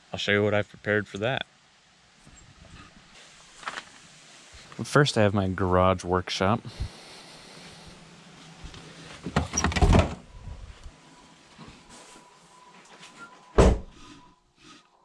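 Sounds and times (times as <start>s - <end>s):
door opening: 9.2s - 10.3s, 13.6s - 14.0s
door shutting with thump: 9.3s - 10.2s, 13.6s - 14.0s.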